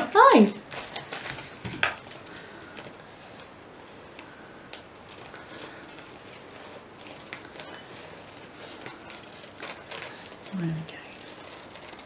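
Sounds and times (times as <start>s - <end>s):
paper rustling: 0.2s - 12.0s
scissors cutting paper: 4.1s - 12.0s.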